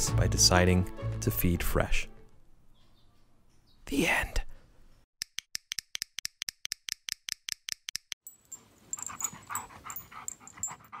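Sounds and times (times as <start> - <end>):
sharp evenly spaced clicks: 5.2 - 8.2
dog: 8.9 - 11.0.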